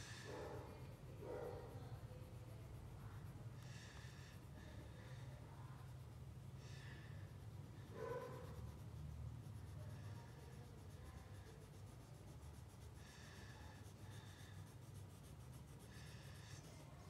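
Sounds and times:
crayon scratching on paper: 0.0 - 17.0
low steady hum: 0.0 - 17.0.

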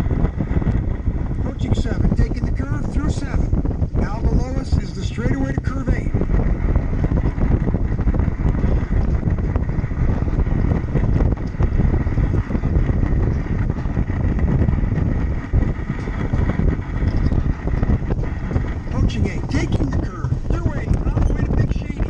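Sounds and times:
sled wheels rumbling on track: 0.0 - 22.0
wind buffeting microphone: 0.0 - 22.0.

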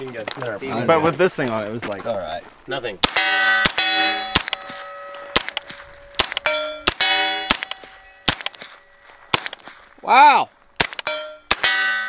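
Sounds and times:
rifle shots: 3.0 - 9.8, 10.8 - 12.0
steel targets clanging: 3.0 - 10.0, 10.9 - 12.0.

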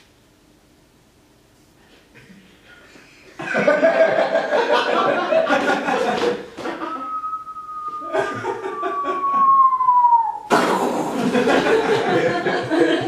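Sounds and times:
laughter: 3.3 - 7.1, 8.0 - 9.5, 11.1 - 13.0
person whistling falling tone: 6.7 - 10.7.

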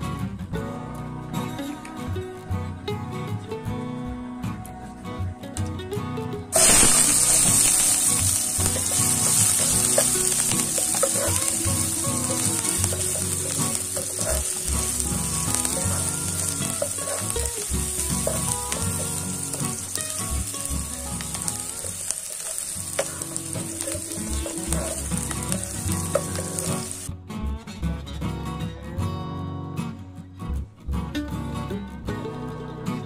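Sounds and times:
onion sizzling in hot oil: 6.5 - 27.1.

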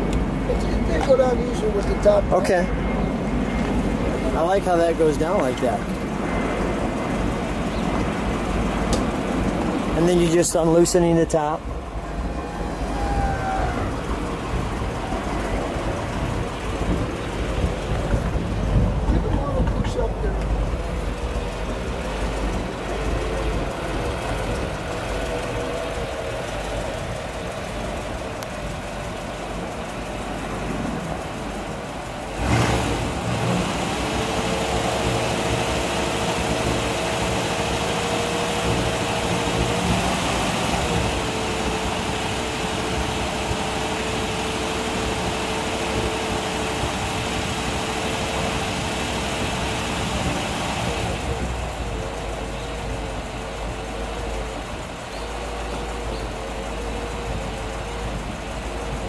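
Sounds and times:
hydraulic pump whining: 31.4 - 59.0.

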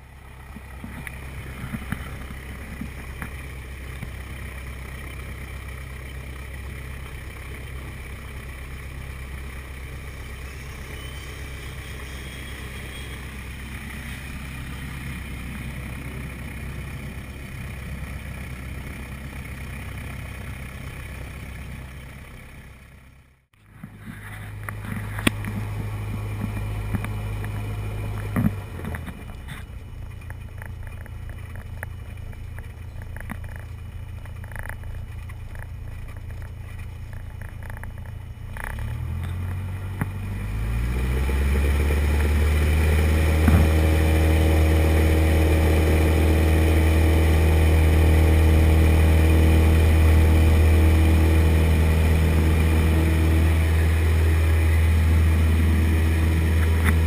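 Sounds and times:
airplane piston engine: 9.2 - 20.6.

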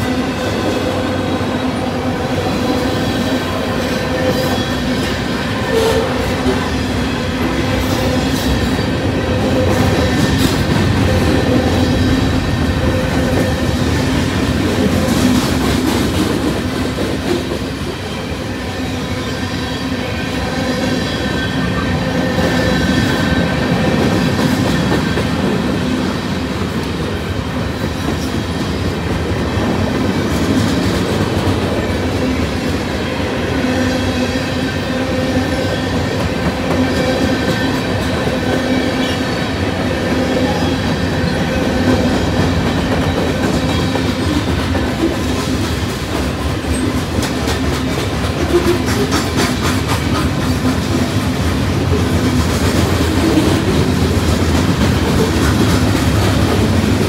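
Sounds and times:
freight train wheels rumbling: 0.0 - 57.0.

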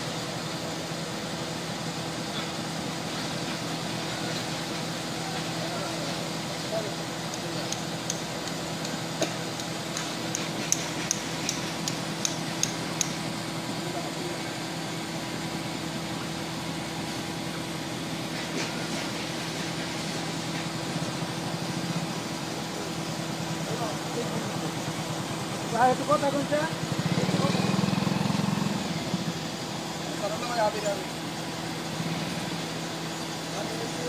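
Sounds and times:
heavy machinery humming: 0.0 - 34.0
sharp metallic taps: 7.3 - 13.2.

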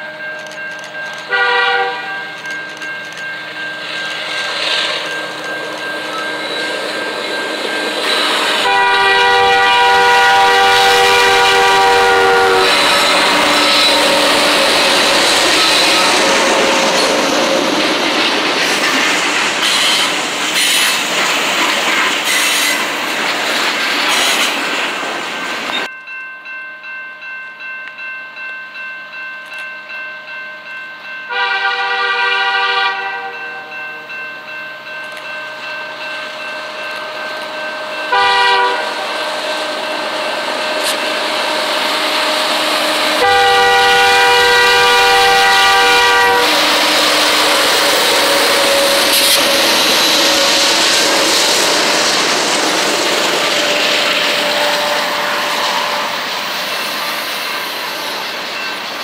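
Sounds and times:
bell ringing: 0.0 - 9.5, 25.7 - 31.8, 33.2 - 42.4, 46.6 - 59.0
train wheels clicking on rails: 0.0 - 25.9, 34.4 - 59.0
locomotive horn blasts: 1.3 - 2.4, 8.5 - 16.8, 31.3 - 33.7, 38.1 - 39.8, 40.4 - 51.2, 53.6 - 56.3.

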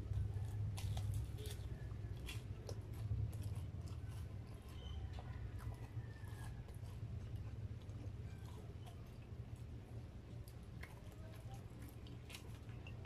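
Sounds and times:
person chewing food: 0.0 - 13.0.

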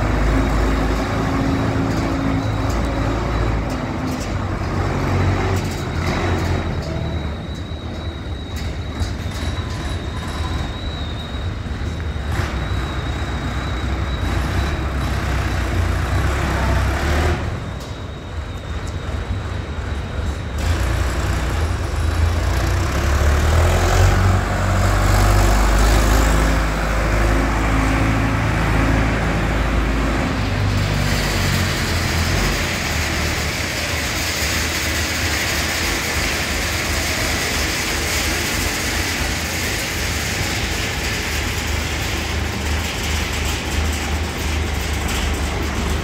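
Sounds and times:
tractor diesel engine running: 20.6 - 46.0.

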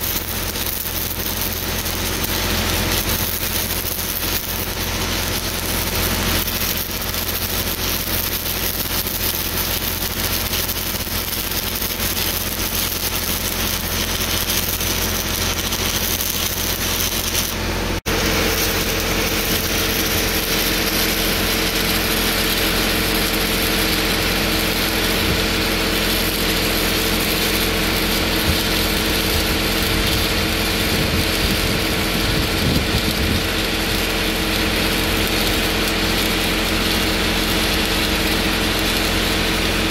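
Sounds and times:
welding arc crackling and sizzling: 0.0 - 39.9.

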